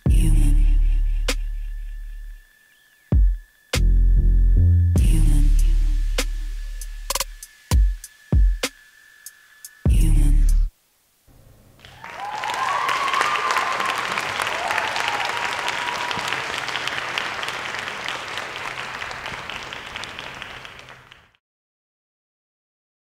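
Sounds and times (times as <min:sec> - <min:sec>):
audience cheering: 0:11.8 - 0:21.3
audience applauding: 0:11.8 - 0:21.4.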